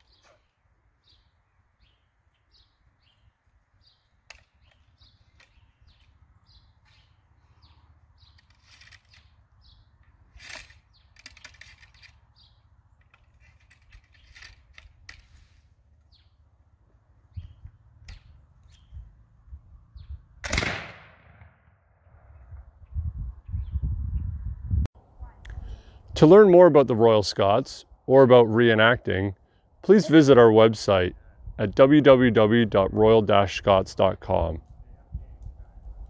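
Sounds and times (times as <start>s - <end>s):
small birds chirping: 0.0s - 20.4s, 22.3s - 24.4s.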